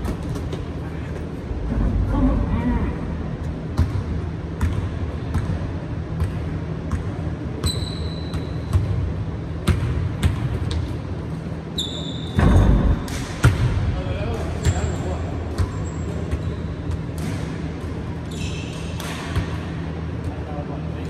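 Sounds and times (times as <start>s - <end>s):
steady low hum: 0.0s - 21.0s
short high squeaks: 7.6s - 8.7s, 11.7s - 12.4s, 18.2s - 19.0s.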